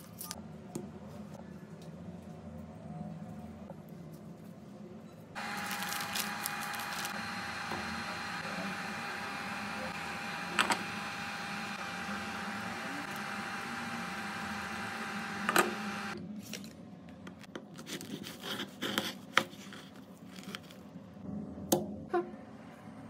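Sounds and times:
cooktop fan hum: 0.0s - 23.0s.

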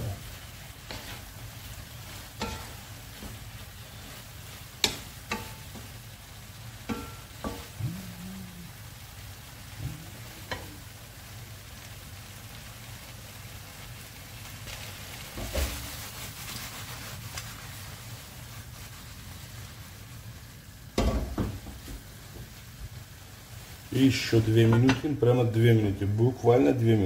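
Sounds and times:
food sizzling in a pan: 0.0s - 27.0s
wooden spatula knocking against pan: 4.8s - 5.9s, 6.8s - 7.8s, 21.0s - 22.5s.

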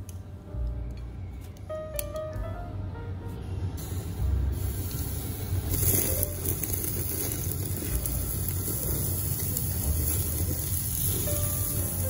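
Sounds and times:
low rumble from grill: 0.0s - 12.0s
beef sizzling on grill: 3.8s - 12.0s.

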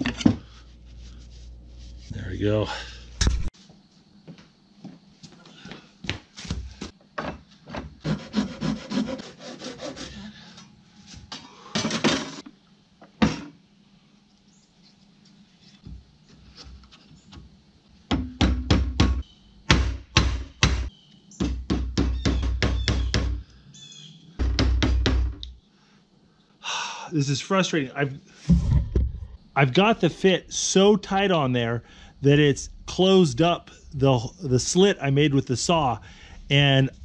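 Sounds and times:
rubber mallet striking wood: 18.1s - 23.4s, 24.4s - 25.4s.

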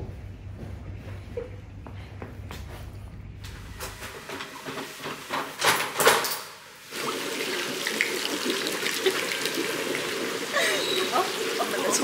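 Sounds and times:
water running: 4.0s - 12.0s.

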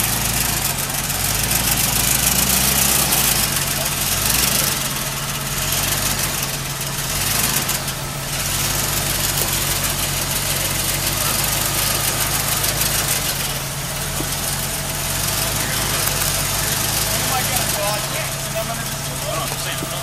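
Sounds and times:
car engine running at low revs: 0.0s - 20.0s.

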